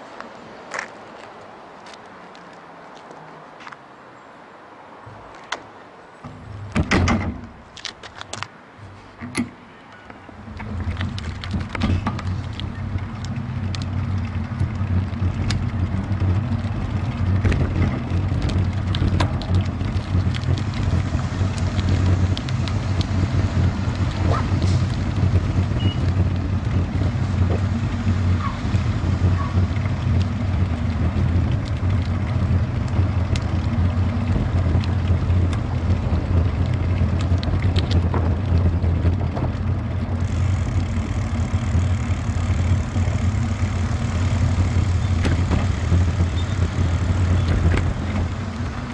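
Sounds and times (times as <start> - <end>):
wind and tyres rumbling: 0.0 - 48.9
small clicks and rattles: 10.4 - 48.9.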